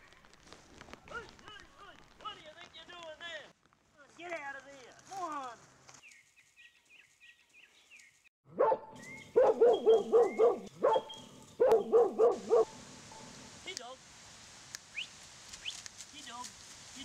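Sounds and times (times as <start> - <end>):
dog barking: 8.5 - 13.5.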